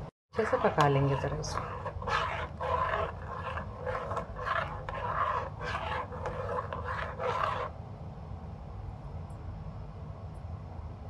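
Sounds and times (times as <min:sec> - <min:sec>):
spoon scraping steel saucepan: 0:00.4 - 0:07.7.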